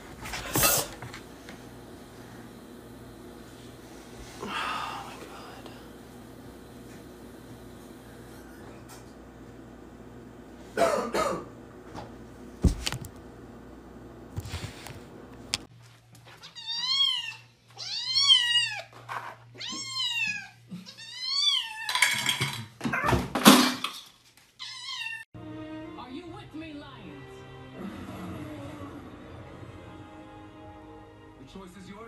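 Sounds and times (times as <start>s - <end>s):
kitten meowing: 16.4s - 18.8s.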